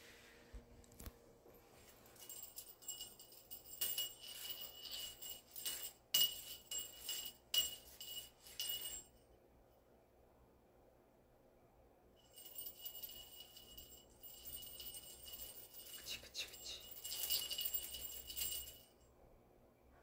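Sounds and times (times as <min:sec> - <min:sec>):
jingle bell shaken: 0:02.1 - 0:09.1, 0:12.2 - 0:19.0.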